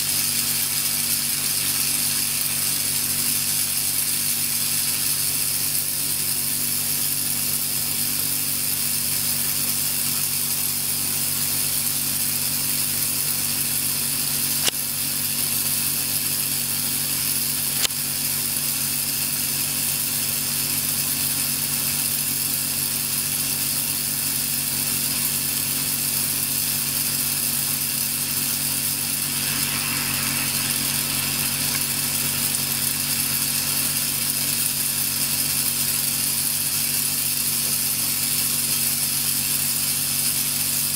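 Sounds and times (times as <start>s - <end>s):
electric discharge sizzling buzz: 0.0s - 40.9s
sharp electric pops: 14.4s - 14.9s, 17.6s - 18.1s, 26.7s - 35.8s
low hum: 28.2s - 34.6s.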